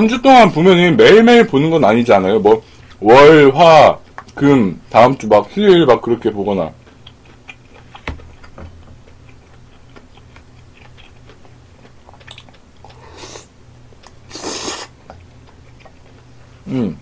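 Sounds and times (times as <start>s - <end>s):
low steady hum: 0.0s - 17.0s
chewing with wet clicks: 4.0s - 4.4s, 6.7s - 13.2s, 13.9s - 14.2s, 15.0s - 16.3s.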